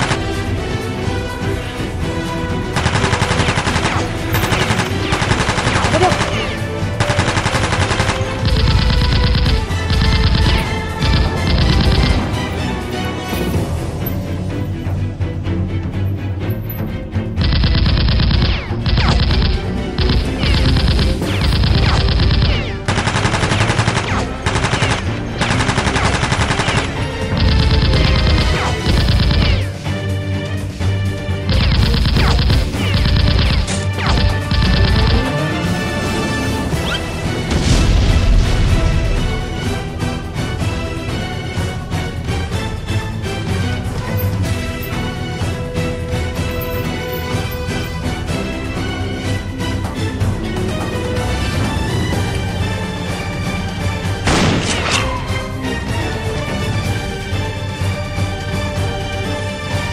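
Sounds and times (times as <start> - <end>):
background music: 0.0 - 59.9
automatic gunfire bursts: 2.8 - 12.2, 17.4 - 29.7, 31.5 - 35.3.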